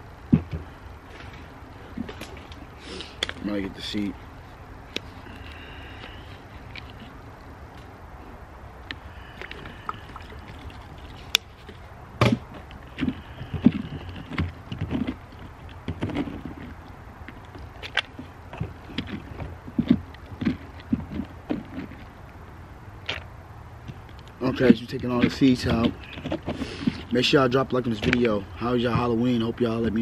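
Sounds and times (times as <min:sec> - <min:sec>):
tool scraping inside pumpkin: 0:24.4 - 0:29.1.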